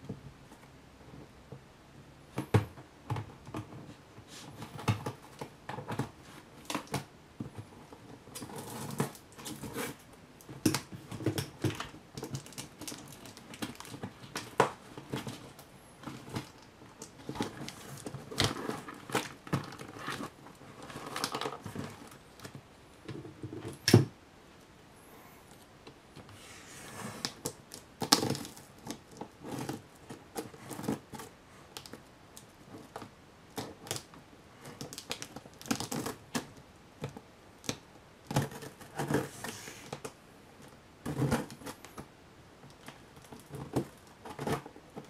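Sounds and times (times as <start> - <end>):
packing tape crinkling: 10.7 - 22.6.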